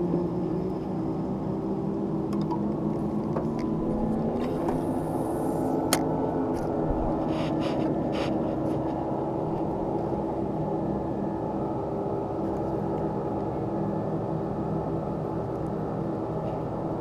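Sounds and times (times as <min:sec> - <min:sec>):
small boat motor hum: 0:00.0 - 0:17.0
scratchy rustles: 0:07.0 - 0:09.8.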